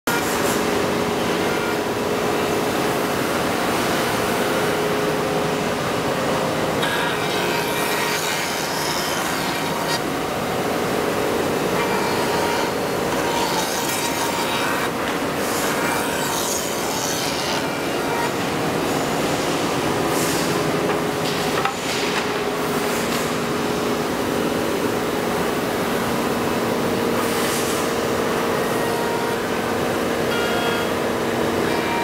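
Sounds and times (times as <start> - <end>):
woodworking router whining: 0.1 - 21.7, 28.1 - 32.0
router cutting wood: 1.2 - 1.9, 6.7 - 19.8, 28.6 - 32.0.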